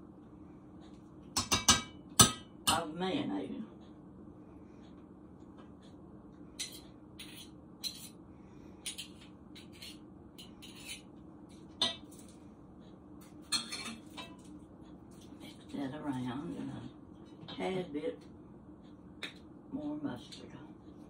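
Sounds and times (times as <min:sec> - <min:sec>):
low steady hum: 0:00.0 - 0:21.0
spoon clinking on dishes: 0:13.4 - 0:14.4.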